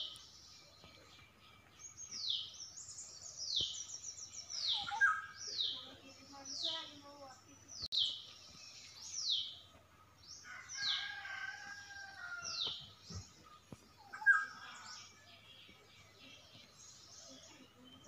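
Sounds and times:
rooster crowing: 10.4 - 12.6.

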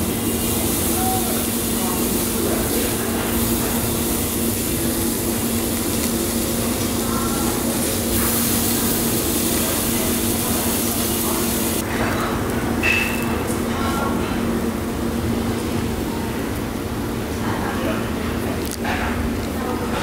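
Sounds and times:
meat sizzling on grill: 0.0 - 13.8.

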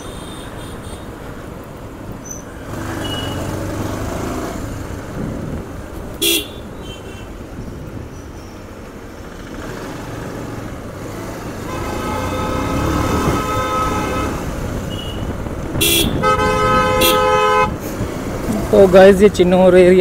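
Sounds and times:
motorcycle engine and road rumble: 0.0 - 20.0
vehicle horn beep: 3.0 - 3.4, 6.2 - 7.3, 11.7 - 17.8.

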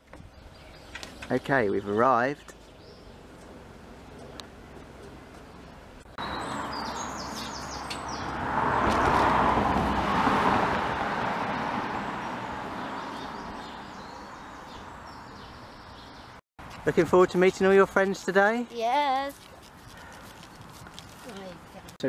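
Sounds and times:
small birds chirping: 0.2 - 3.5, 4.1 - 8.4, 12.7 - 16.4, 18.9 - 22.0
vehicle passing: 3.0 - 16.3.

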